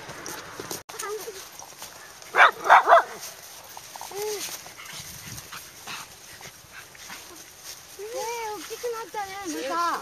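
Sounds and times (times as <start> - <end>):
small dogs barking: 2.3 - 3.3.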